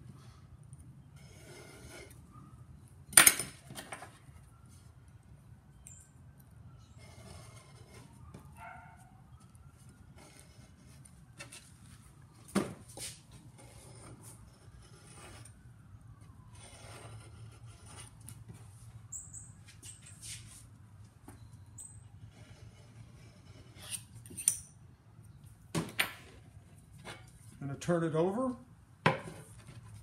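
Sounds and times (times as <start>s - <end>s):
knife scraping felt: 22.4s - 24.5s.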